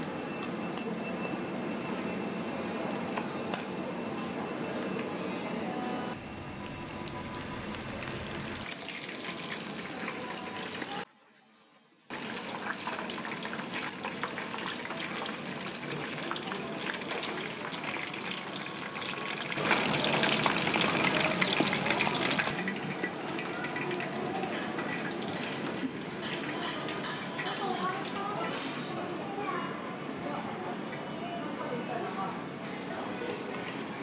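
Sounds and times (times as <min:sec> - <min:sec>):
oil sizzling and crackling: 0:06.2 - 0:10.1, 0:17.0 - 0:22.5.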